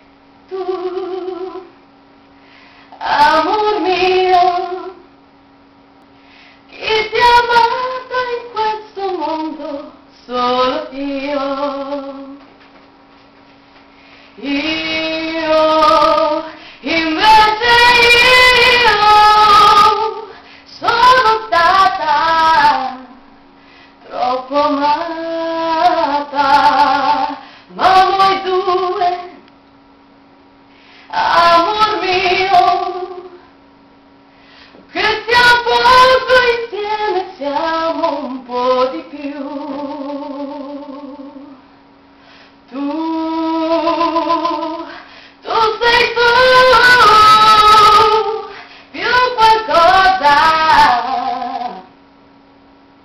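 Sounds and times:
woman singing: 0.5s - 1.8s, 2.9s - 5.1s, 6.7s - 12.5s, 14.4s - 23.4s, 24.0s - 29.4s, 31.1s - 33.5s, 34.9s - 41.6s, 42.7s - 51.9s.

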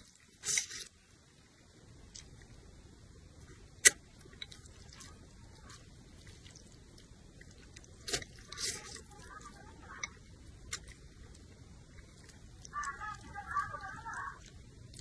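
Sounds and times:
slurping and chewing noodles: 3.4s - 15.0s.

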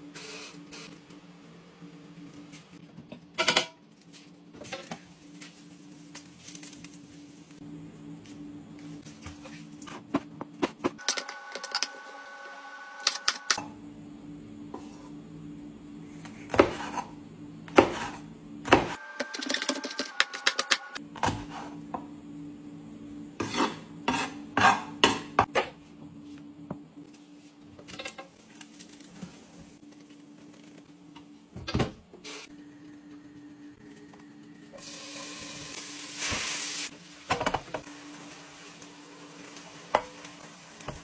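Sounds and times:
knife chopping on cutting board: 16.5s - 17.0s, 17.7s - 19.0s.

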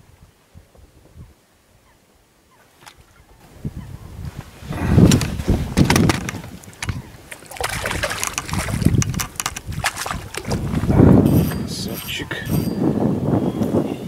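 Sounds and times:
water sloshing and splashing: 4.8s - 12.1s
small knocks and clicks: 5.1s - 7.0s, 7.6s - 10.6s.

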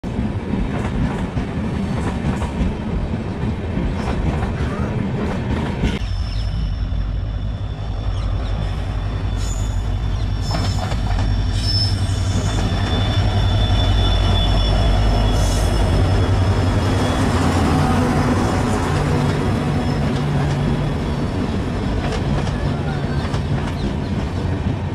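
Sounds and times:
train coaches rumbling: 0.0s - 24.9s
high-pitched wheel squeal: 6.0s - 18.1s.

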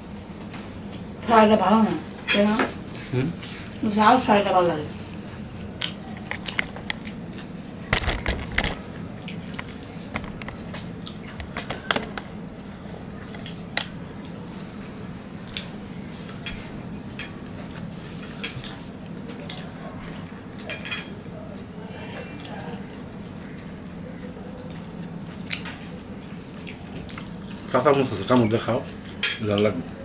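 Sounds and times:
person chewing food: 5.6s - 14.4s, 22.4s - 27.7s.

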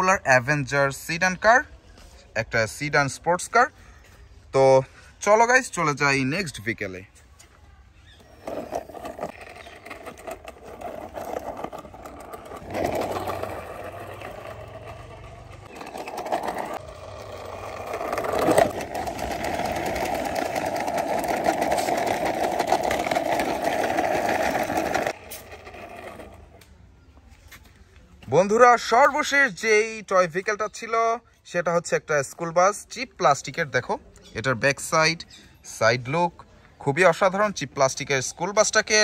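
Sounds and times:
toy bus wheels grinding rattle: 8.4s - 26.6s.

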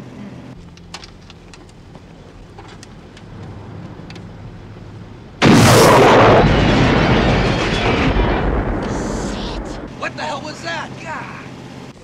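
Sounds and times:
vehicle engine running: 0.0s - 5.4s
rocket launcher blast: 5.4s - 9.9s.

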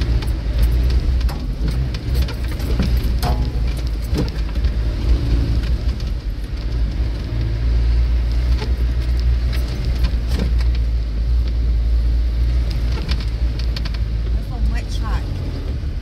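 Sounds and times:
car body knocking over ruts: 0.0s - 7.6s, 8.2s - 11.7s
low engine and drivetrain rumble: 0.0s - 16.0s.

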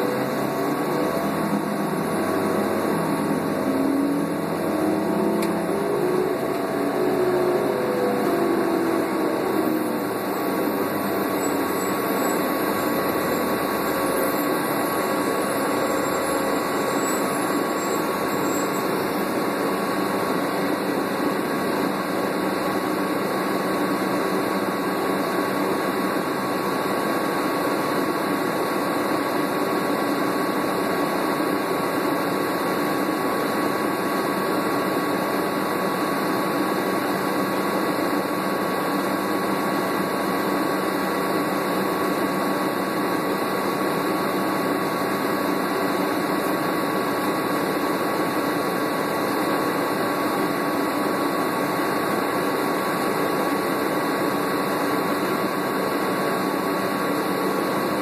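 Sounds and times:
air conditioning rushing: 0.0s - 20.9s
bus engine idling: 0.0s - 58.0s
constant high whine: 0.0s - 58.0s.

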